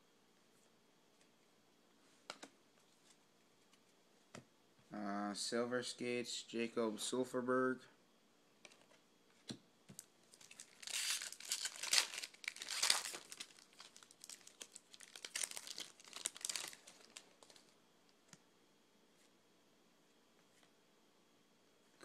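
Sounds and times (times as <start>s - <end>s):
foil wrapper tearing and crinkling: 10.3s - 17.7s.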